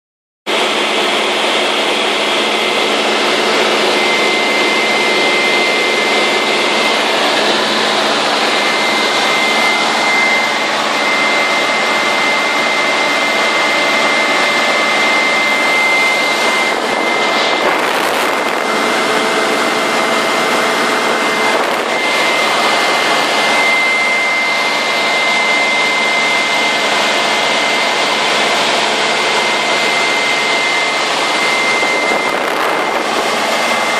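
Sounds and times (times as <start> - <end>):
aeroplane engine droning: 0.5 - 33.9
thin high whistle: 4.0 - 18.5, 21.5 - 26.8.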